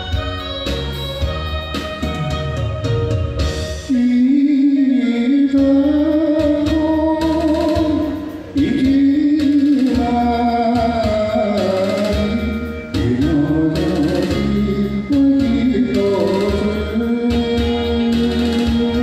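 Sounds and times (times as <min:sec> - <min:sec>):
instrumental backing: 0:00.0 - 0:19.0
person singing wavering notes: 0:03.8 - 0:19.0.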